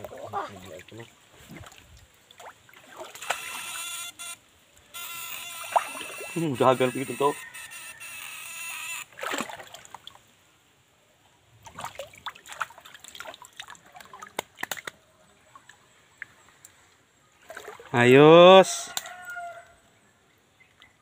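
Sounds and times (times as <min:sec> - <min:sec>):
stream water splashing by hand: 0:00.0 - 0:03.8, 0:05.4 - 0:07.2, 0:09.0 - 0:10.6, 0:11.5 - 0:16.7, 0:17.4 - 0:18.3.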